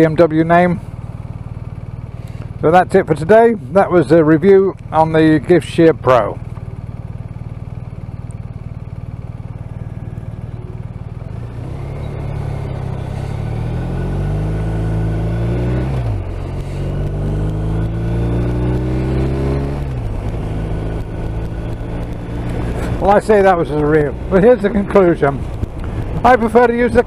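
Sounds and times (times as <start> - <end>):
motorcycle engine idling and pulling away: 0.0 - 27.0.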